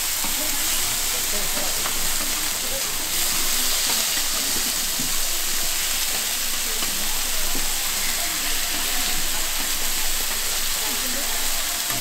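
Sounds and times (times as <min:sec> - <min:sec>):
steak sizzling: 0:00.0 - 0:12.0.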